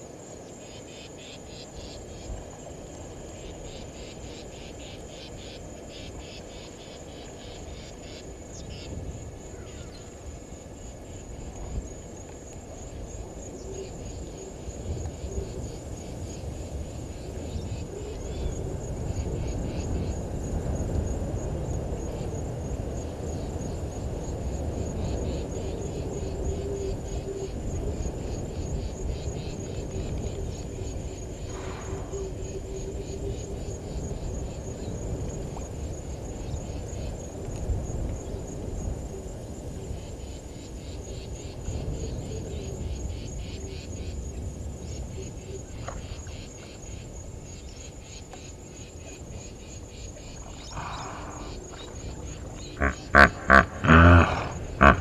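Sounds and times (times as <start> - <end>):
crickets trilling: 0.0 - 55.0.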